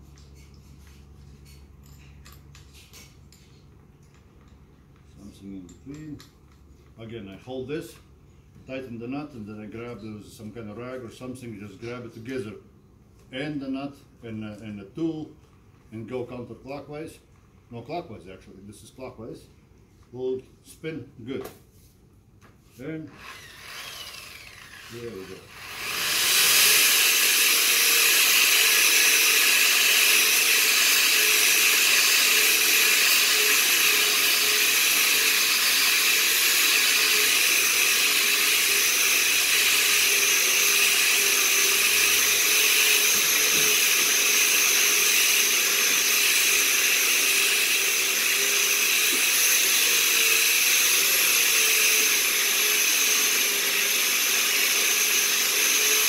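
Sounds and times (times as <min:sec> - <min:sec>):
rotary tool wire brush whining: 0:23.1 - 0:56.0.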